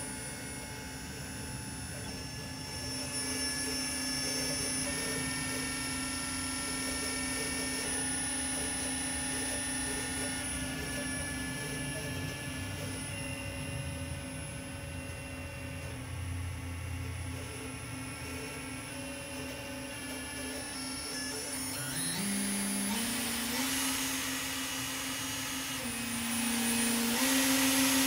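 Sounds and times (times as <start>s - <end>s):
machine hum with high whine: 0.0s - 28.0s.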